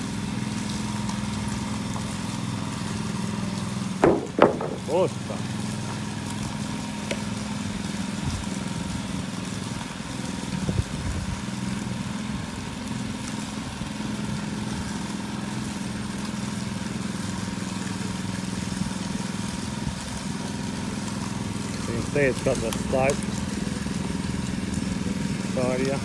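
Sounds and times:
small petrol engine running: 0.0s - 26.0s
short knock: 4.0s - 4.9s.

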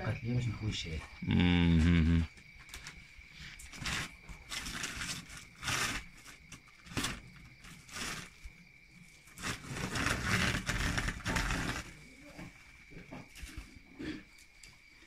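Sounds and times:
plastic sack rustling: 3.7s - 8.6s, 9.2s - 12.1s
ground maize pouring: 9.3s - 12.2s.

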